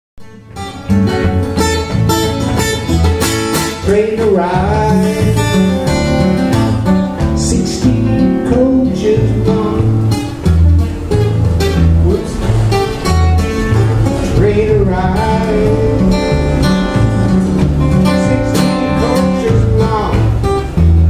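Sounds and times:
acoustic guitar strumming: 0:00.2 - 0:21.0
man singing: 0:03.7 - 0:10.2, 0:11.8 - 0:12.5, 0:14.2 - 0:20.5.

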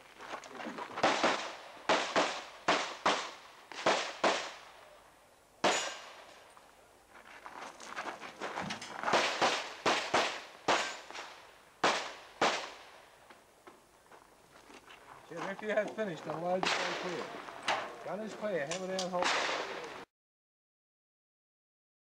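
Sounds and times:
pistol shots: 0:01.0 - 0:04.9, 0:05.6 - 0:06.4, 0:09.0 - 0:12.9, 0:16.6 - 0:17.8, 0:19.0 - 0:20.0.

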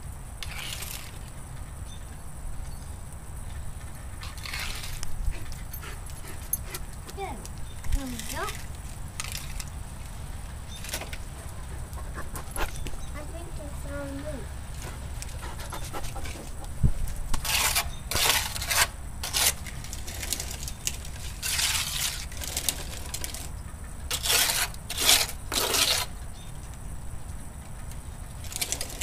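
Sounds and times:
plastic shovel scraping asphalt: 0:00.4 - 0:01.3, 0:04.2 - 0:05.5, 0:06.7 - 0:16.6, 0:17.4 - 0:23.5, 0:24.1 - 0:26.2, 0:28.4 - 0:29.0.

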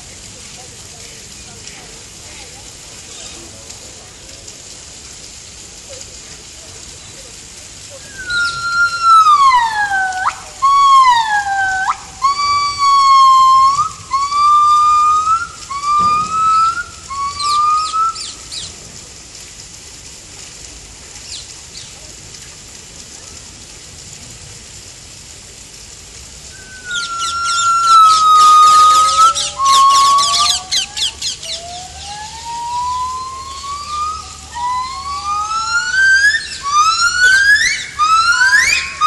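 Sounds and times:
gibbons singing whistle-like notes: 0:07.9 - 0:18.8, 0:26.5 - 0:39.0.

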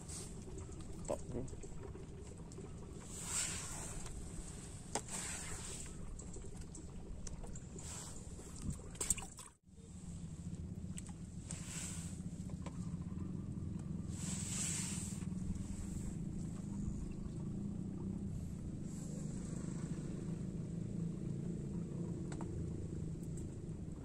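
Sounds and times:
low engine rumble: 0:00.0 - 0:24.0.

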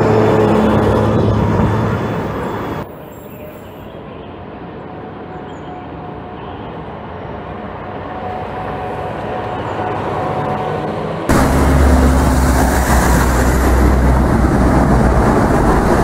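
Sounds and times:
bus pulling away: 0:00.0 - 0:02.8, 0:08.5 - 0:16.0
bus engine with faint whine: 0:00.0 - 0:16.0.

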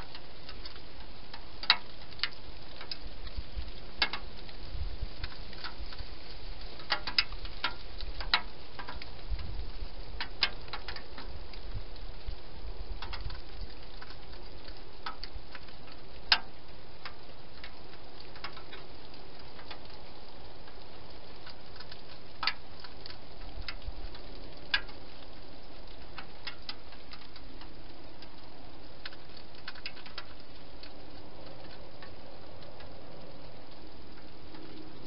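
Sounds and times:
steady hiss: 0:00.0 - 0:35.0.

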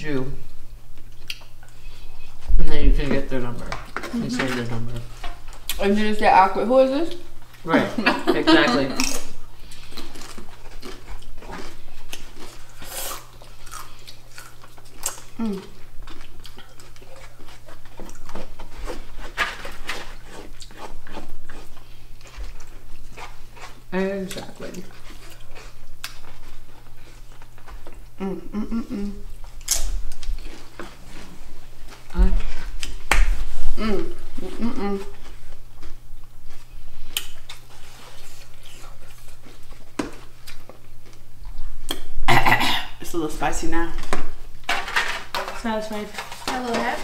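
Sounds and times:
people eating: 0:00.2 - 0:47.0
close chewing mouth sounds: 0:09.6 - 0:19.2, 0:19.9 - 0:28.2.

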